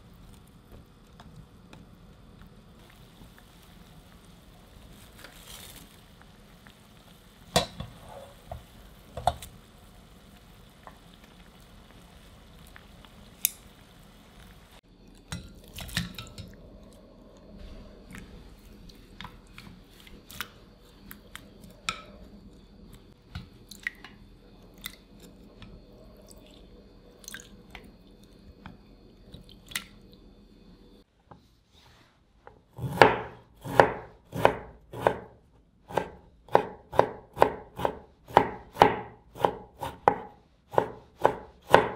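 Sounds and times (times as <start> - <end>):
water boiling in a pan: 0.0 - 17.5, 18.3 - 31.1
water sloshing in a bowl: 23.4 - 28.4, 29.3 - 30.2
knife chopping on wooden board: 32.8 - 35.3, 35.9 - 41.9.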